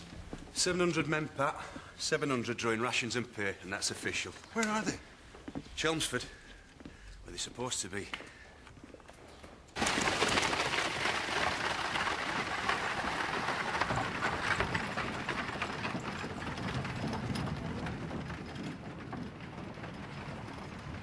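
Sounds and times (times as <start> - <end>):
horse-drawn stagecoach rattling: 9.7 - 21.0.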